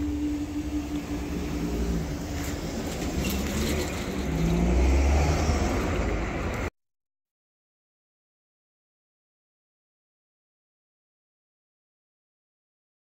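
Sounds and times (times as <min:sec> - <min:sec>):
steady low hum: 0:00.0 - 0:03.3
car driving over crossing: 0:00.0 - 0:06.7.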